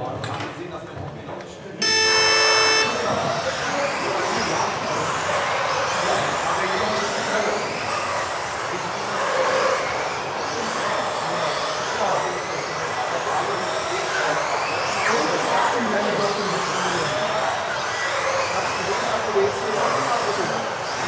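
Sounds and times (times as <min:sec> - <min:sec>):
electric rc car motors whining: 0:04.7 - 0:21.0.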